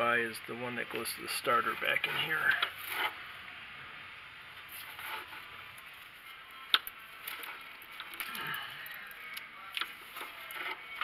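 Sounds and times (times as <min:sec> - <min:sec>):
gloved hand handling wiring: 0:04.6 - 0:11.0.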